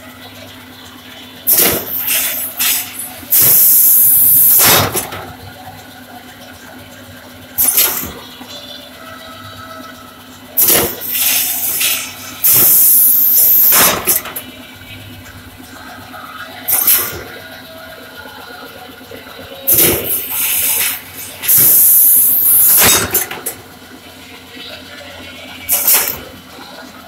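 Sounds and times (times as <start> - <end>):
low machine hum: 0.0 - 27.0
compressed air hissing: 10.6 - 14.2, 19.7 - 23.0.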